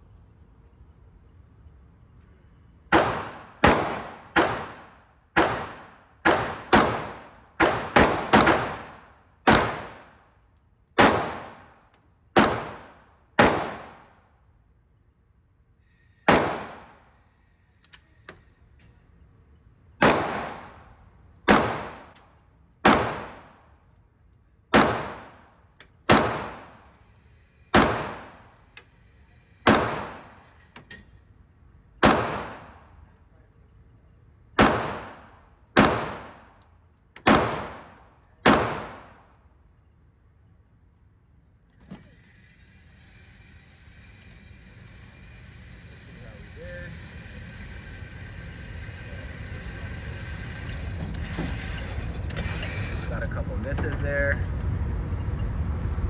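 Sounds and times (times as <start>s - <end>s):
pistol shots echoing indoors: 2.9s - 10.1s, 16.3s - 17.0s, 20.0s - 22.2s, 32.0s - 32.8s, 34.5s - 36.6s, 37.2s - 39.3s.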